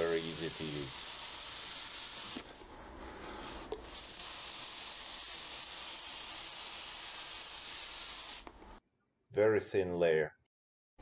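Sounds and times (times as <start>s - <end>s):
airbrush spraying hiss: 0.0s - 8.8s.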